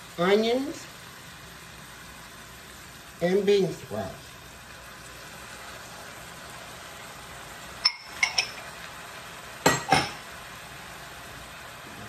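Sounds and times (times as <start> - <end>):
vegetables sizzling: 0.0 - 12.0
glass bowl clinking on pan: 7.8 - 8.7, 9.6 - 10.2.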